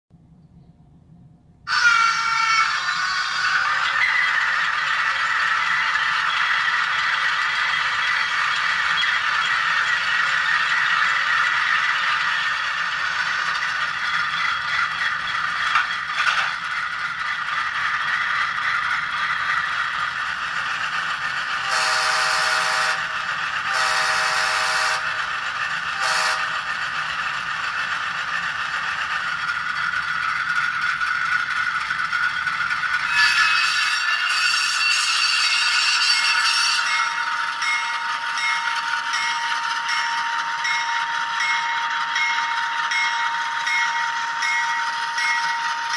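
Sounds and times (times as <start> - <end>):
tinny diesel locomotive idling: 1.6 - 45.9
locomotive horn blasts: 21.7 - 23.0, 23.7 - 25.1, 26.0 - 26.6.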